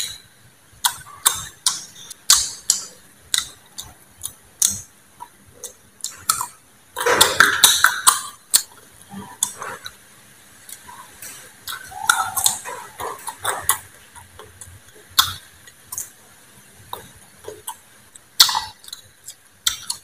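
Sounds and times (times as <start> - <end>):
wet smacking chewing: 10.7 - 16.1.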